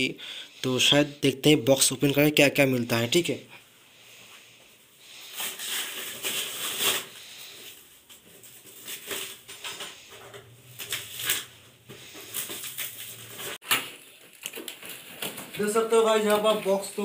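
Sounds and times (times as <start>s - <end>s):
plastic wrap crinkling: 5.2s - 17.0s.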